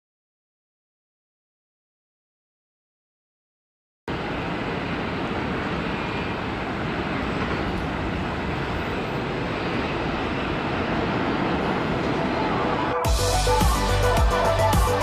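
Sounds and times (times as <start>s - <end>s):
jet airliner landing: 4.1s - 13.2s.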